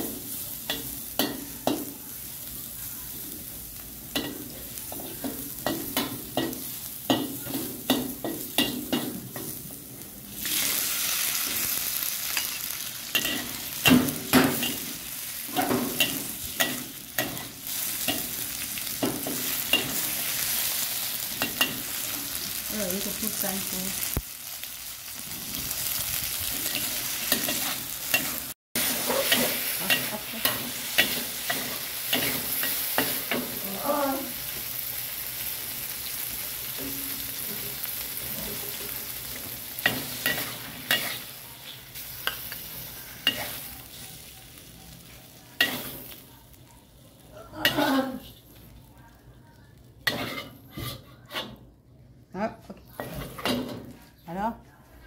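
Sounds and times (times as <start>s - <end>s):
food sizzling in hot oil: 0.0s - 50.8s
spatula scraping a pan: 26.6s - 33.2s, 39.8s - 41.4s, 42.2s - 43.8s, 50.0s - 51.6s.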